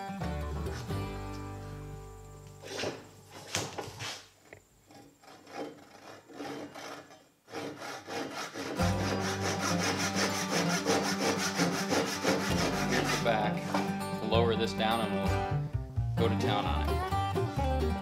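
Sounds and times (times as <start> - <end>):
hand saw cutting wood: 2.6 - 4.3, 4.9 - 13.9.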